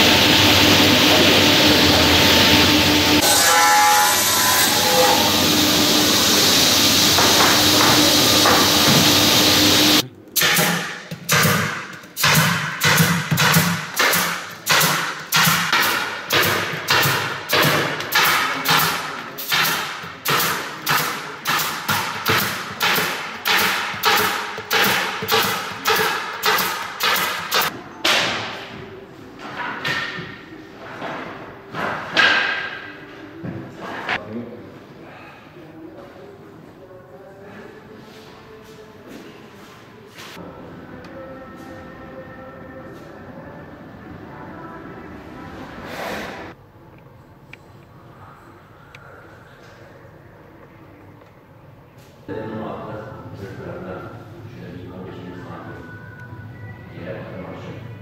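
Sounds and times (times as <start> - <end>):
panel saw running: 0.0 - 10.0
pneumatic staple gun shots: 10.4 - 27.7.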